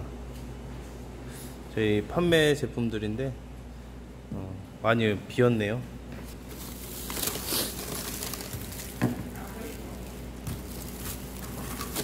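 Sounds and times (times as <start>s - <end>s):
plastic wrap rustling: 6.3s - 12.0s.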